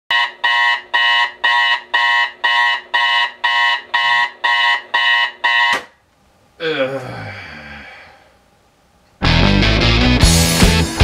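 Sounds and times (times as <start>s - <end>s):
alarm clock beeping: 0.1s - 5.9s.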